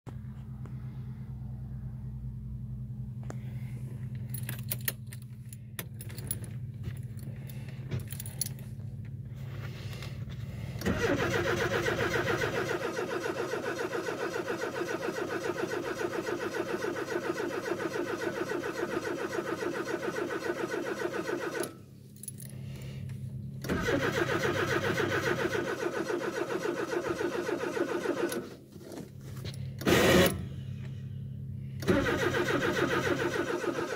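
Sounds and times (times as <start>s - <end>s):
steady low hum: 0.1s - 13.4s, 21.7s - 24.0s, 28.4s - 33.3s
keys jangling and clicking: 4.1s - 8.8s, 22.1s - 22.6s
starter motor cranking engine: 10.7s - 21.7s, 23.6s - 28.6s, 29.8s - 30.5s, 31.8s - 33.9s.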